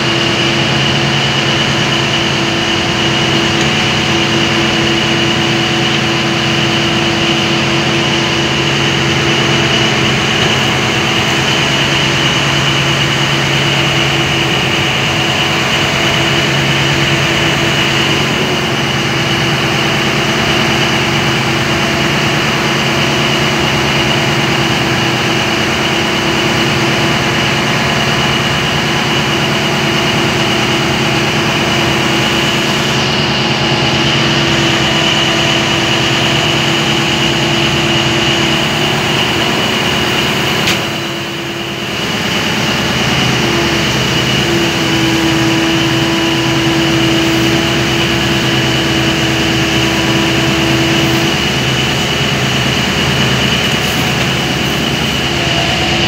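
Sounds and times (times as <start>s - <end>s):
boat engine drone: 0.0s - 56.0s
high engine whine: 0.0s - 56.0s.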